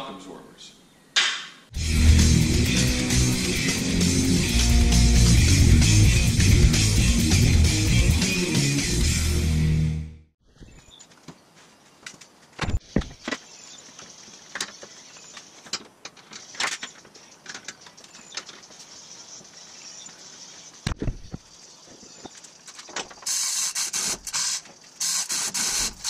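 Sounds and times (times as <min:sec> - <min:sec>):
metal parts clicking and knocking: 0:14.5 - 0:18.7
loud hiss: 0:23.2 - 0:26.0.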